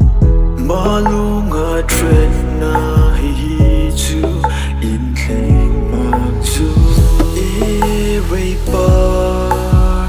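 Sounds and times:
background music with a beat: 0:00.0 - 0:10.0.

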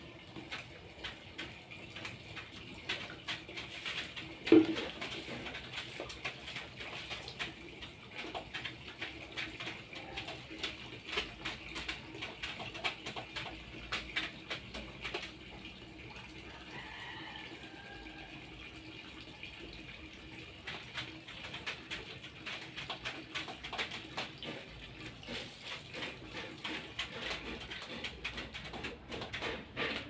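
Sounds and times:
plastic containers clattering: 0:00.0 - 0:15.4.

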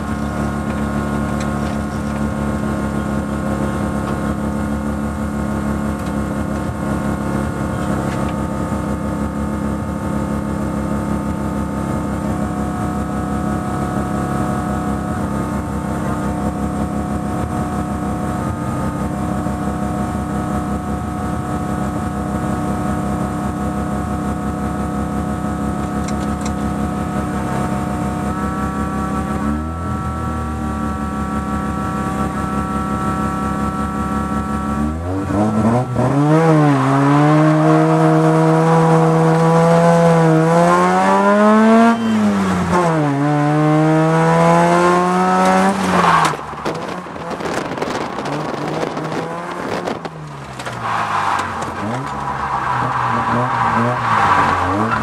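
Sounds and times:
rotary engine revving: 0:25.9 - 0:55.0.

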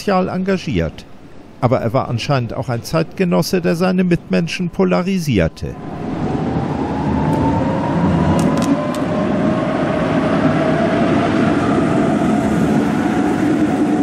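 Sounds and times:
tram whine sliding down: 0:05.7 - 0:14.0
cars rolling past: 0:05.8 - 0:14.0.

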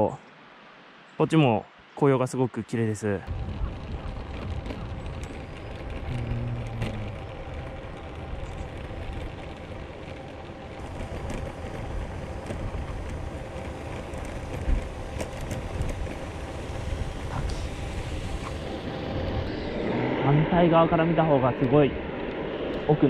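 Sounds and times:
bike tyres rolling on pavement: 0:03.2 - 0:19.5
wind rush over microphone: 0:03.2 - 0:23.0.

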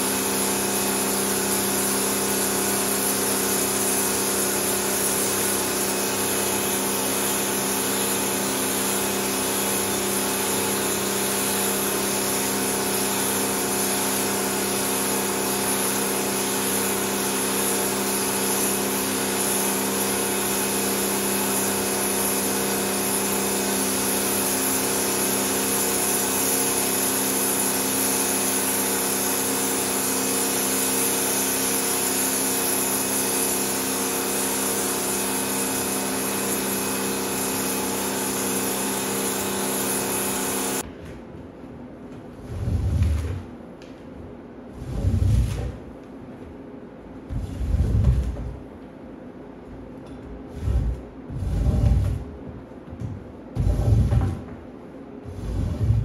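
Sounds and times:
pressure washer motor hum: 0:00.0 - 0:40.8, 0:50.5 - 0:52.2, 0:53.6 - 0:54.4, 0:55.3 - 0:56.0
water jet hissing onto rug: 0:00.0 - 0:40.8, 0:44.8 - 0:45.7, 0:47.3 - 0:48.5, 0:50.5 - 0:52.2, 0:53.6 - 0:54.3, 0:55.2 - 0:56.0.

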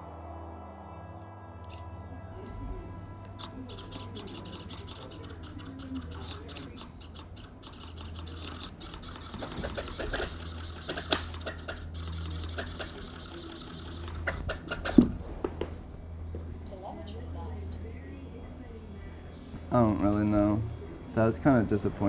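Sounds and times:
fast rasping and scraping: 0:03.3 - 0:15.2.

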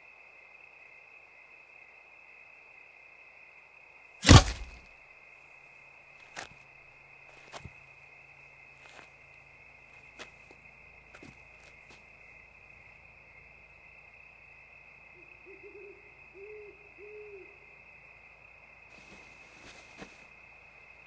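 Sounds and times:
insect chorus: 0:00.0 - 0:21.0
owl hooting: 0:15.1 - 0:17.8.

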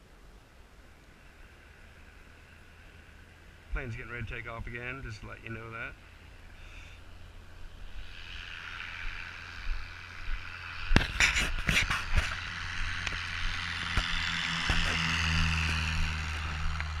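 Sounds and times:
motor scooter engine running: 0:07.6 - 0:17.0.

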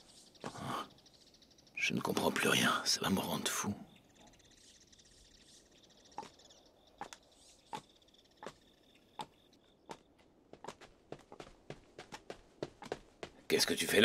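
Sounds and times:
faint footsteps: 0:07.8 - 0:13.7.

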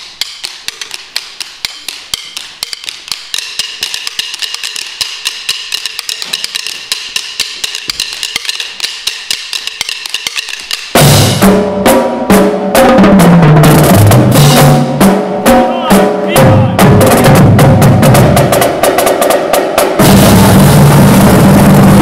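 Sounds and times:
drum sticks clicking: 0:00.0 - 0:11.3
drum line playing: 0:00.0 - 0:22.0.

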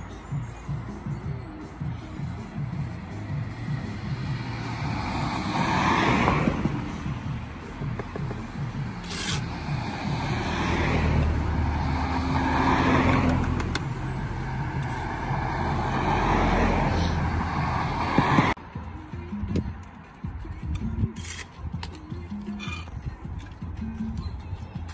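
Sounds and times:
road traffic passing: 0:00.0 - 0:24.9
sharp clicks: 0:13.2 - 0:13.9.

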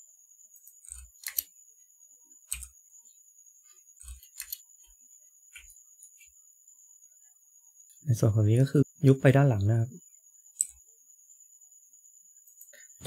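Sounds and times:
mouse and keyboard clicks: 0:00.7 - 0:01.5, 0:02.5 - 0:02.7.

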